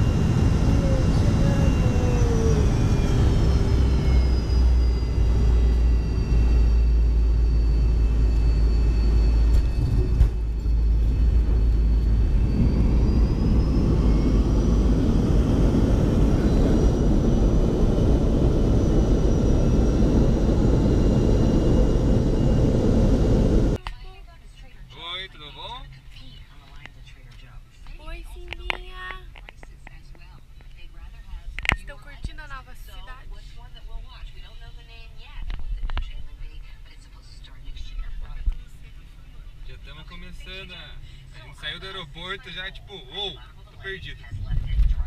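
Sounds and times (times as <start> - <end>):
airliner cabin rumble: 0.0 - 23.8, 29.2 - 42.2, 43.3 - 45.0
jet engine whine: 0.0 - 23.8.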